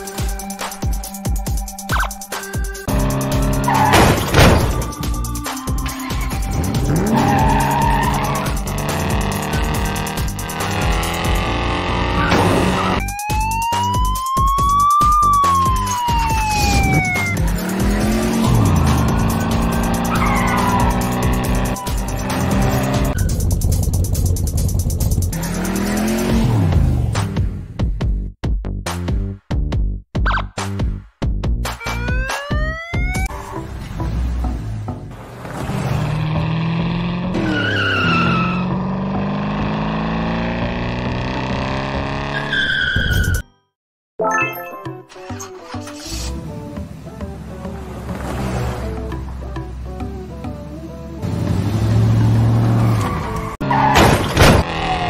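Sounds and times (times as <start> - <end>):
background music with steady beat: 0.0 - 11.8, 13.0 - 35.1
tire squeal: 3.5 - 4.3, 5.8 - 8.6, 18.4 - 23.6, 37.3 - 38.9, 42.3 - 43.5, 52.1 - 55.0
police siren wail: 12.2 - 19.2, 20.0 - 23.2, 31.8 - 33.3
race car engine running hard: 17.4 - 26.8.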